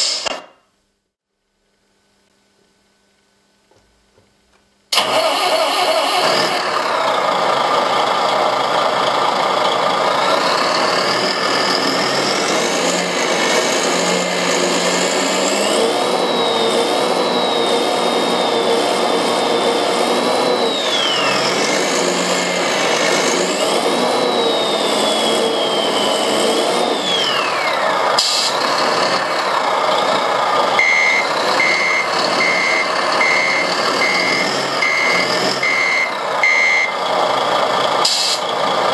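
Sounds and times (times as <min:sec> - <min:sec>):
short hiss: 0:00.0 - 0:00.3
synthesized truck engine: 0:04.9 - 0:38.9
reversing beeper: 0:30.7 - 0:37.0.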